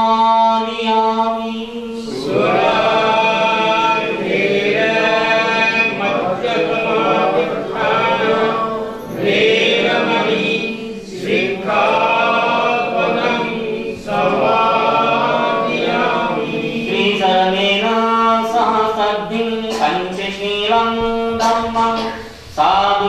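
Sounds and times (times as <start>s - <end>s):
congregation chanting: 0.0s - 23.0s
monk chanting into microphone: 16.6s - 23.0s.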